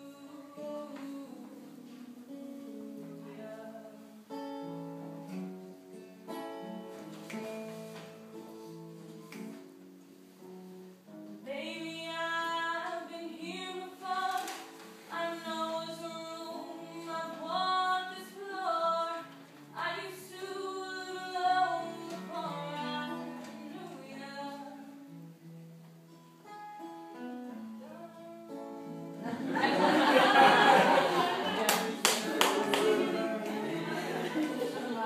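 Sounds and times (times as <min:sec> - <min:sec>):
woman singing: 0:00.0 - 0:04.3, 0:11.4 - 0:24.9, 0:27.8 - 0:28.3, 0:31.4 - 0:35.0
acoustic guitar playing: 0:00.0 - 0:35.0.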